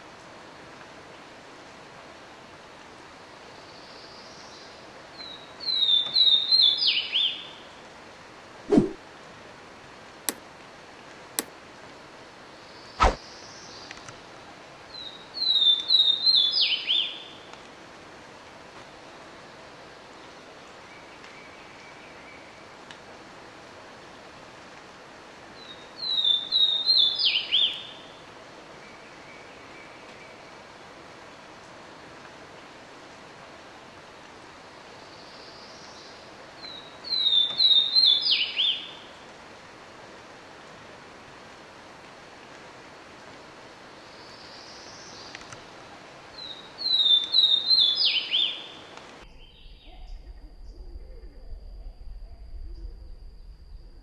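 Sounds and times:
bird singing: 15.0s - 17.4s, 25.6s - 28.1s, 36.6s - 39.1s, 46.4s - 53.8s.

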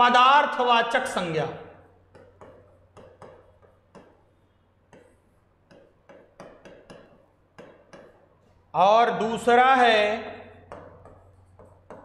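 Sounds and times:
pen tapping on glass display: 2.1s - 8.3s, 10.6s - 12.0s.

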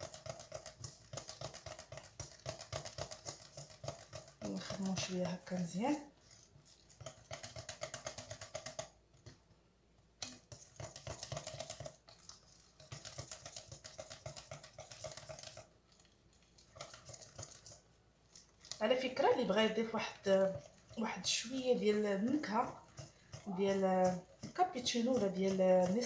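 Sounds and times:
soft ticking of sticky paste: 0.0s - 26.0s.

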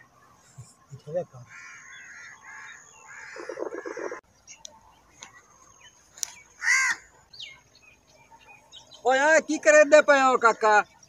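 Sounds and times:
crow cawing: 1.4s - 4.2s, 6.6s - 7.1s.

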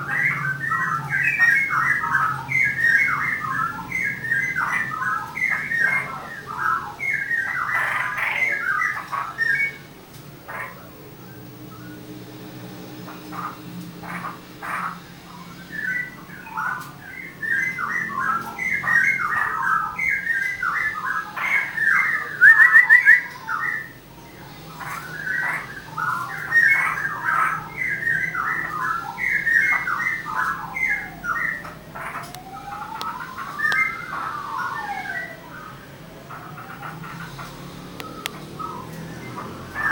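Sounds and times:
songbirds chirping: 0.0s - 39.9s
long gliding whistle: 32.4s - 36.0s.

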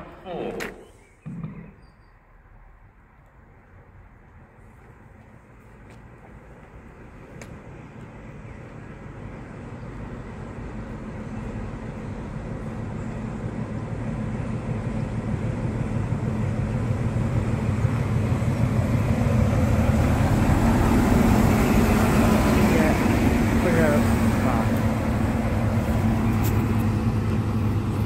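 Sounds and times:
diesel train engine: 0.0s - 28.0s
train wheels on rails: 4.2s - 28.0s.

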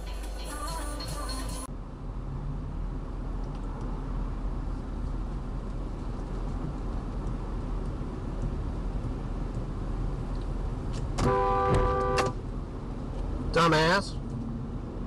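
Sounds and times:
car road noise: 0.0s - 15.0s
two-tone car horn honk: 11.2s - 12.4s.

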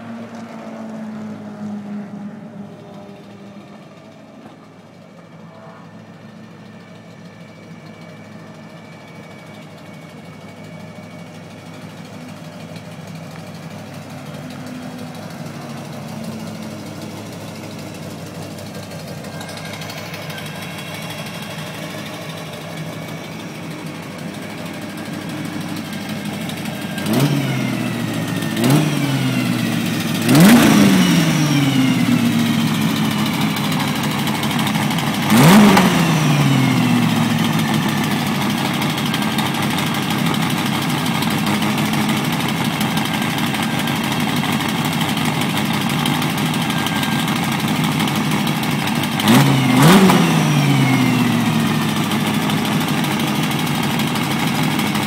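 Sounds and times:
car engine revving: 12.5s - 55.0s.

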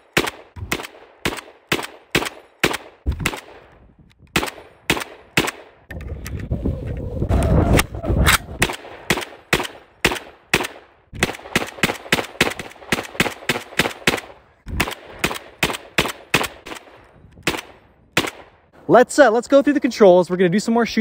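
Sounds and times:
machine gun firing: 8.6s - 16.9s.

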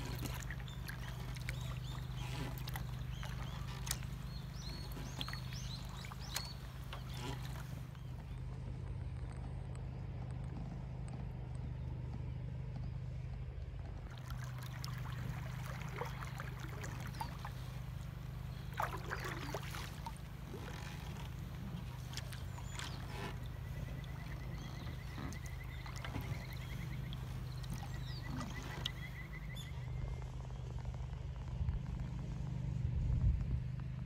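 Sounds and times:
bird calls: 0.0s - 8.4s, 14.1s - 30.3s
water sloshing around a kayak: 0.0s - 8.6s, 14.0s - 32.5s.

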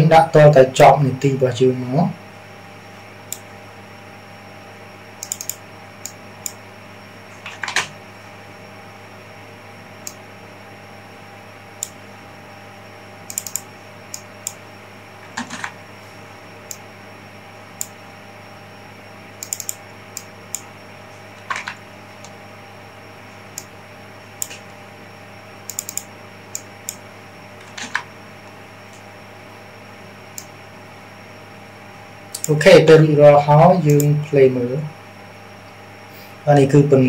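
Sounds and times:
low electrical hum: 0.0s - 37.0s
mouse and keyboard clicks: 5.2s - 6.6s, 13.3s - 14.6s, 19.4s - 20.7s, 25.7s - 27.0s.

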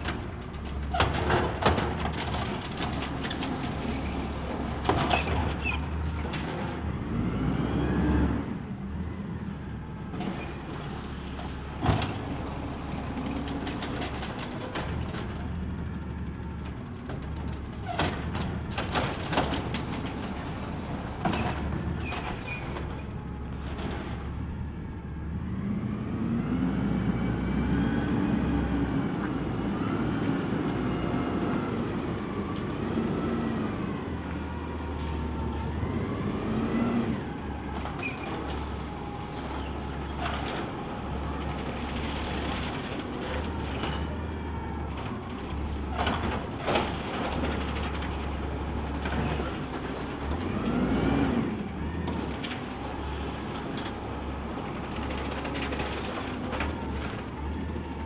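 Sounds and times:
diesel engine revving: 5.9s - 10.0s, 24.1s - 34.3s, 34.9s - 42.8s, 48.4s - 52.4s.

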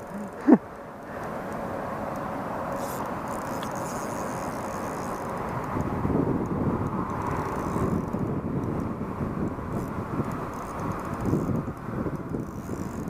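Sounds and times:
wind buffeting microphone: 3.8s - 13.0s.

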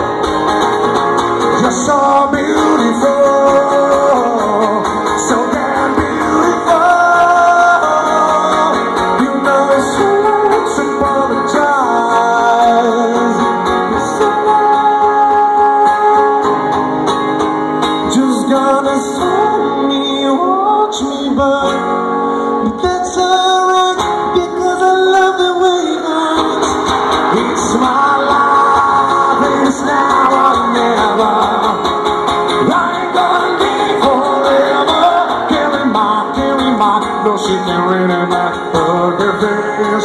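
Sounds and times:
drums: 0.0s - 19.8s, 22.8s - 40.0s
strummed guitar: 0.0s - 40.0s
person singing: 1.4s - 17.0s, 18.0s - 40.0s.

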